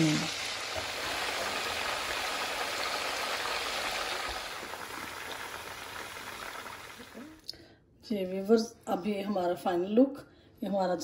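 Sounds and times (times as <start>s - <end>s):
hot oil sizzling: 0.0s - 7.4s.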